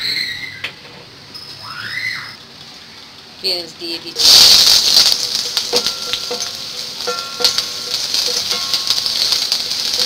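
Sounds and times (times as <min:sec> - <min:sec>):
onions sizzling in hot oil: 0:02.7 - 0:10.0.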